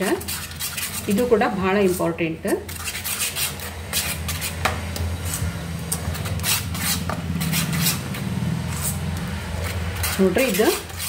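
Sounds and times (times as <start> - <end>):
spoon beating batter in steel bowl: 0.0 - 11.0.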